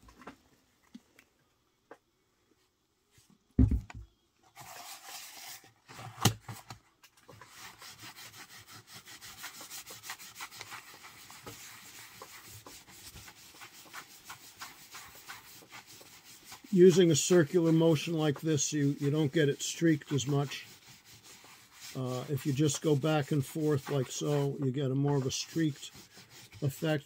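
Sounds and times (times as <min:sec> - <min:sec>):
low thump: 0:03.6 - 0:04.0
wool dauber rubbing leather: 0:07.4 - 0:27.0.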